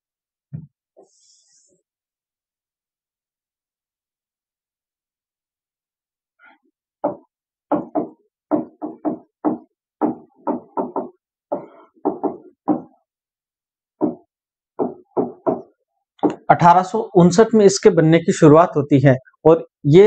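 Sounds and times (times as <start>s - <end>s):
stylus tapping on touchscreen: 14.0s - 16.5s.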